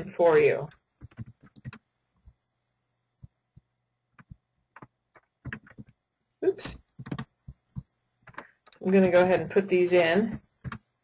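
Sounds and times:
computer keyboard keystrokes: 1.0s - 1.8s, 4.1s - 6.0s, 6.9s - 8.8s, 10.3s - 10.9s.

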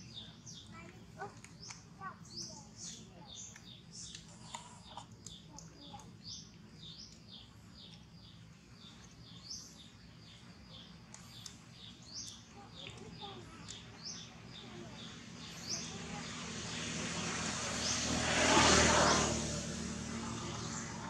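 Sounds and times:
faint birds chirping: 0.0s - 21.0s.

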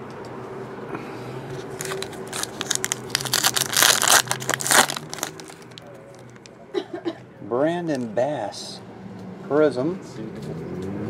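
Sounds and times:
foil wrapper crinkling and tearing: 1.6s - 6.5s.

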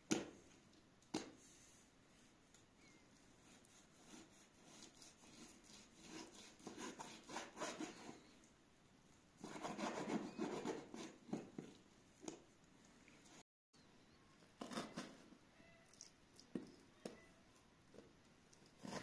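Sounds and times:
knife sawing through meat: 3.5s - 8.1s.

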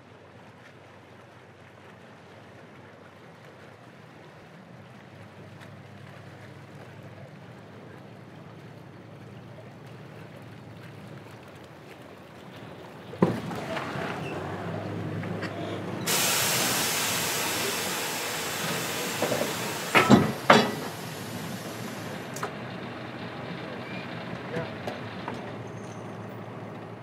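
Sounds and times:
low engine hum: 4.9s - 27.0s
metallic clunk: 13.2s - 26.1s
loud steady hiss: 13.2s - 26.9s
heavy knocks: 17.3s - 23.0s.

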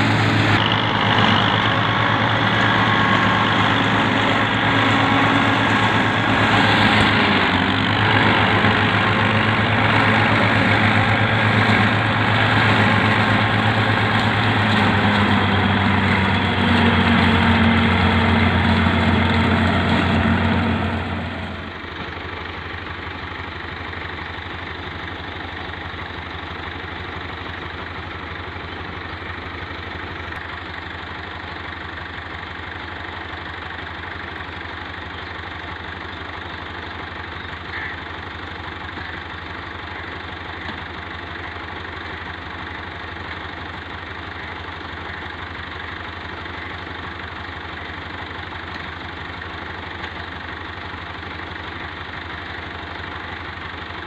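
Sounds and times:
silage chopper running: 0.0s - 23.9s
tractor engine idling: 0.0s - 54.0s.

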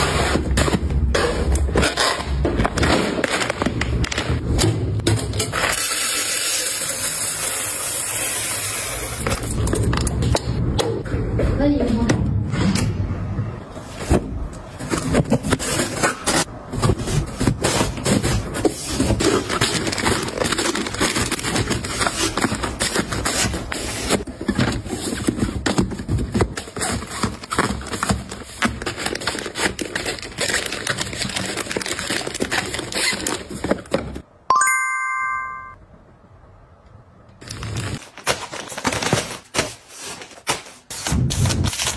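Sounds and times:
plastic packs crinkling and rustling: 14.7s - 34.2s, 37.4s - 41.9s
short bright chime: 34.5s - 35.8s.

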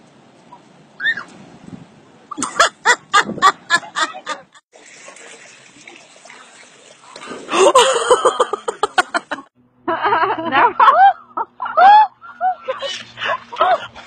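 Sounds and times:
people laughing: 2.4s - 4.6s, 7.5s - 14.0s.

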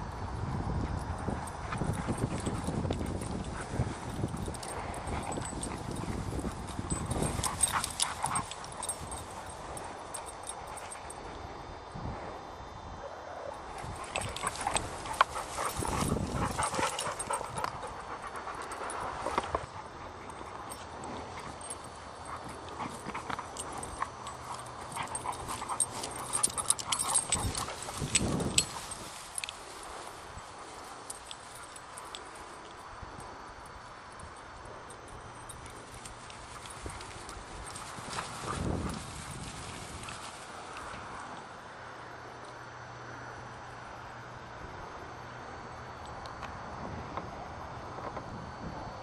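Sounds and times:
dogs moving about: 1.1s - 11.2s, 13.7s - 32.8s, 35.3s - 41.5s.

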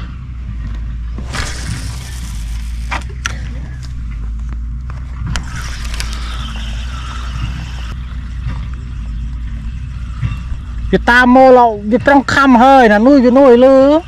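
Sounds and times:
fishing rod and reel clicks: 1.2s - 4.0s, 5.2s - 8.0s.

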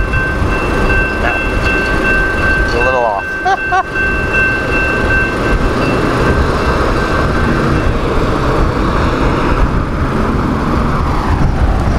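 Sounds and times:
crossing warning bell ringing: 0.0s - 10.0s
low rumble of vehicles: 0.0s - 11.9s.

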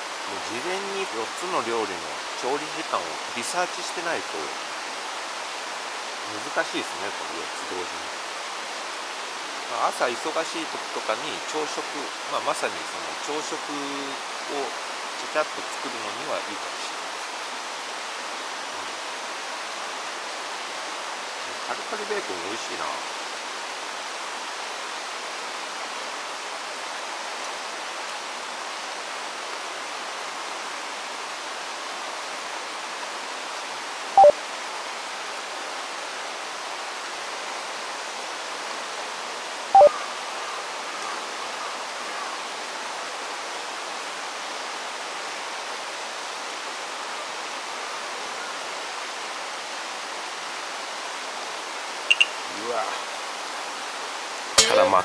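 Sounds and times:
river flowing: 0.0s - 55.0s
short beep-like blip: 52.1s - 52.4s.

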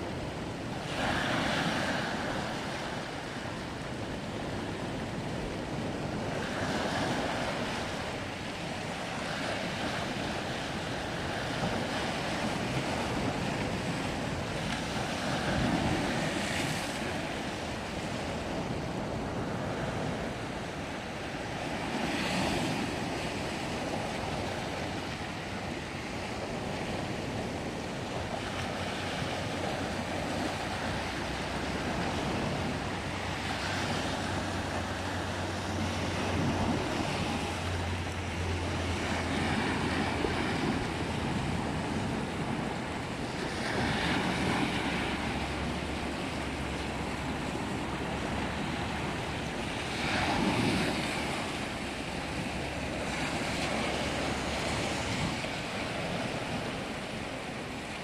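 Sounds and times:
waves breaking on rocky shore: 0.0s - 58.0s.

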